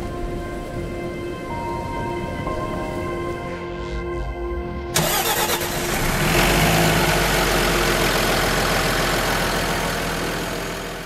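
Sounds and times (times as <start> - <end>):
diesel engine running: 4.9 - 11.0.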